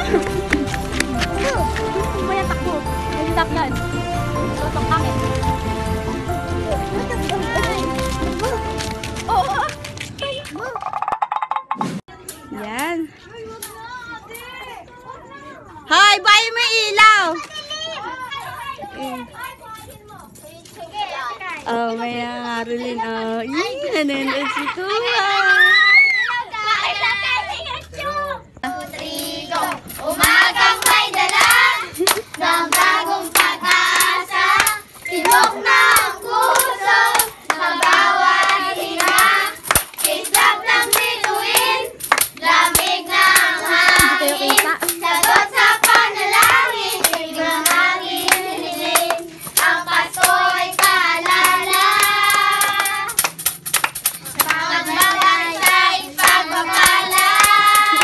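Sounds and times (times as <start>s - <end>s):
hands clapping: 0.0s - 2.2s, 7.1s - 10.6s, 28.9s - 58.0s
children singing a carol: 28.6s - 53.2s, 54.4s - 58.0s.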